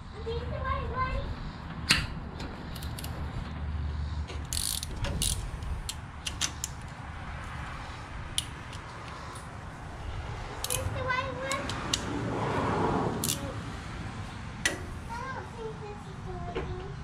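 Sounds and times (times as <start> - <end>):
ratchet wrench clicking: 4.3 - 6.9, 10.6 - 10.9, 13.2 - 13.6
sharp metal clicks: 4.3 - 7.0, 8.3 - 9.5, 10.6 - 12.1, 13.2 - 13.5.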